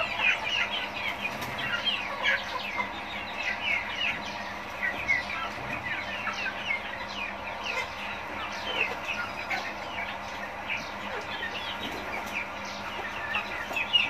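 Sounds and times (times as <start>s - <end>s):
chicks peeping and chirping: 0.0s - 14.0s.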